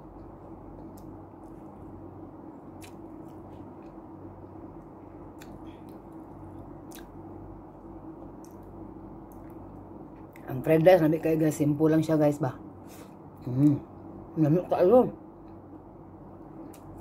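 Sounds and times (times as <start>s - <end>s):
steady low hum: 0.0s - 17.0s
person chewing with wet mouth sounds: 2.6s - 7.3s.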